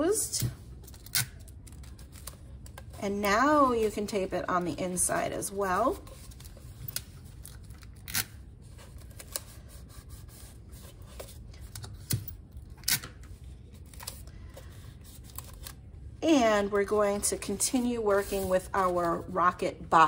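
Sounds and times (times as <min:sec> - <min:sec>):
low steady hum: 0:00.0 - 0:20.0
tape and paper crinkling: 0:00.8 - 0:03.0, 0:05.8 - 0:15.9.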